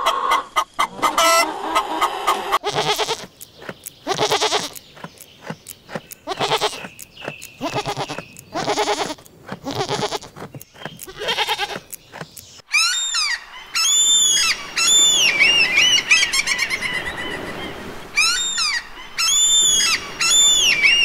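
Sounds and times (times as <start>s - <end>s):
goat bleating: 2.5s - 3.4s, 4.0s - 4.8s, 6.2s - 6.9s, 7.5s - 12.0s
gulls squawking: 12.7s - 21.0s.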